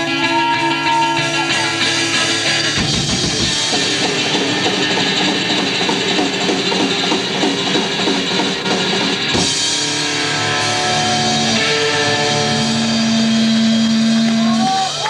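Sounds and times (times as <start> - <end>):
drums playing hard: 0.0 - 15.0
ringing guitar notes: 9.6 - 14.8.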